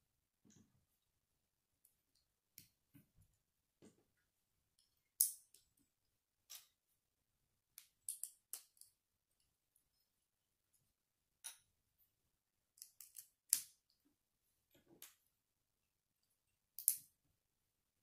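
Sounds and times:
plastic bricks clicking together: 0:07.8 - 0:08.9, 0:12.8 - 0:13.7, 0:16.8 - 0:17.1.

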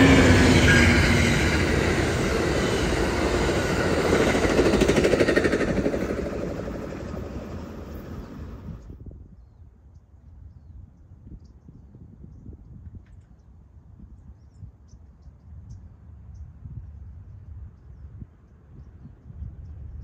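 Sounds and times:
passenger train rumbling past: 0:00.0 - 0:09.0.

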